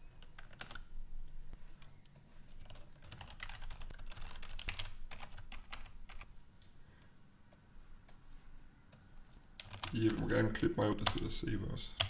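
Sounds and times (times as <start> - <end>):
keyboard typing clicks: 0.2 - 0.9, 9.6 - 10.2.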